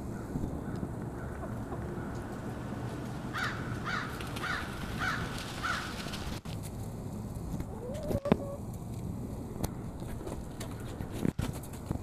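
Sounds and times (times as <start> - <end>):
harsh bird caws: 3.3 - 6.0.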